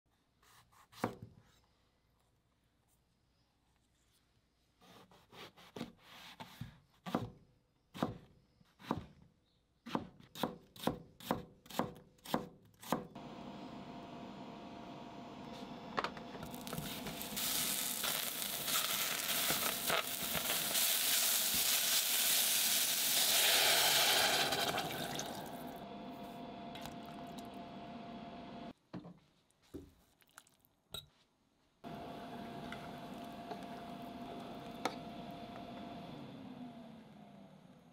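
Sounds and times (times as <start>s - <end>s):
knife chopping on cutting board: 0.5s - 1.2s
vegetables sizzling in oil: 16.4s - 25.6s.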